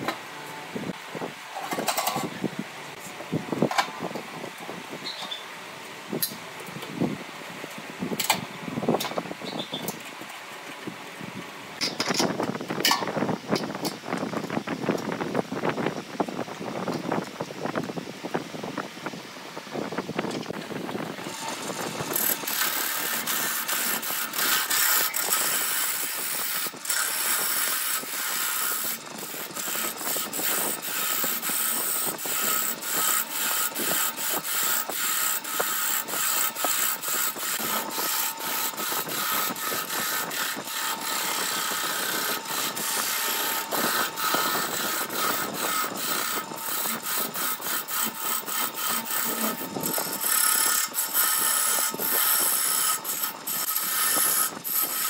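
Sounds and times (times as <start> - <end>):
lathe whine: 20.5 - 55.0
turning tool scraping wood: 21.2 - 55.0.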